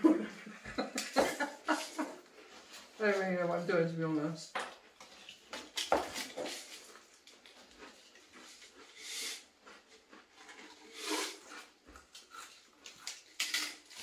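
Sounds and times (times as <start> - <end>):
crisps being crunched: 5.7 - 8.8, 10.1 - 14.0.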